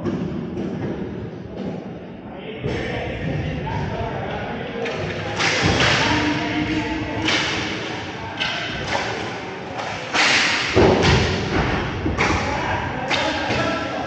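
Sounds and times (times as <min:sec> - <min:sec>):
knocks and thuds echoing: 0:00.0 - 0:01.8, 0:04.8 - 0:14.0.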